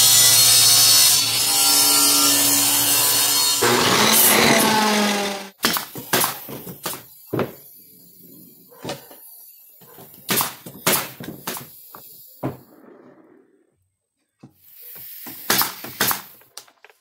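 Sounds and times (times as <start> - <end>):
nail gun driving brads: 3.6 - 7.0, 15.3 - 16.6.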